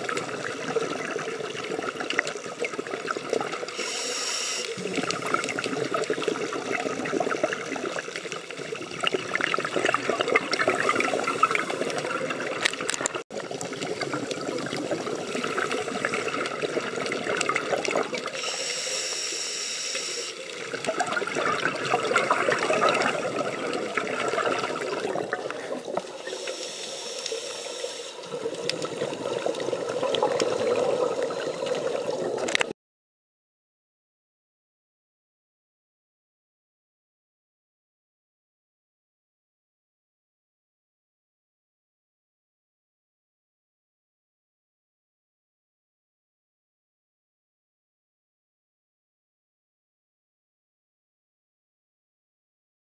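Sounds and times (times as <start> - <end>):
crackling underwater hiss: 0.0 - 32.7
regulator breath bubbling: 2.7 - 7.4, 9.5 - 12.6, 13.6 - 32.5.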